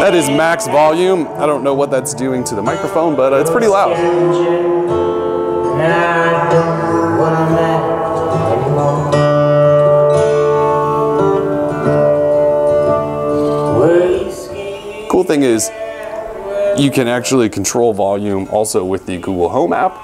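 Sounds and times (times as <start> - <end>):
person speaking: 0.0 - 4.4, 13.9 - 20.0
loud music from smart speaker: 0.0 - 15.1.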